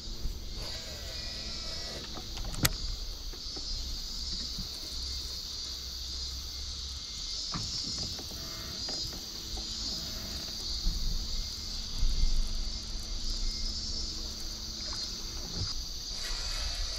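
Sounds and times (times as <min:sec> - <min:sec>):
steady high hiss: 0:00.0 - 0:16.9.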